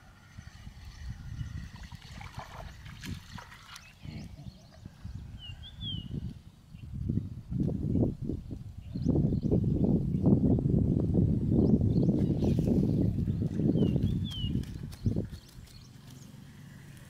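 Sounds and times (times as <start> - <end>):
bird chirping: 11.6 - 17.0.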